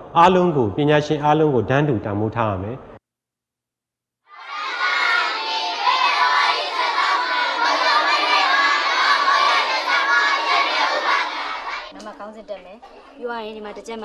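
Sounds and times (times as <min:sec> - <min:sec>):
children chanting together: 0:04.3 - 0:12.0.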